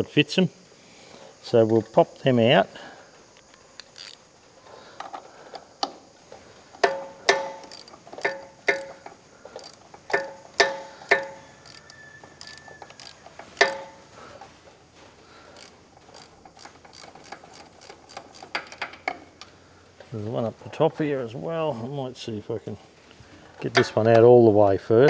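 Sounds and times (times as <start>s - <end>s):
ratchet wrench clicking: 3.8s - 4.3s, 6.7s - 14.0s, 15.6s - 19.2s.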